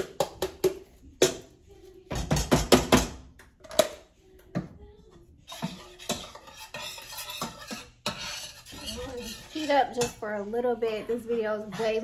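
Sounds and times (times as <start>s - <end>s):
utensil tapping on cookware: 0.0s - 1.5s, 5.5s - 10.2s
utensil scraping cookware: 5.4s - 12.0s.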